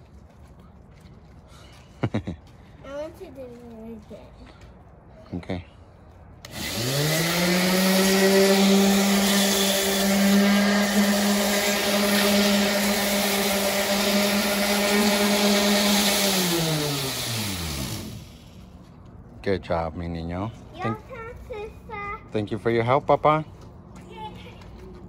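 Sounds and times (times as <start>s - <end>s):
orbital sander sanding wood: 6.5s - 18.6s.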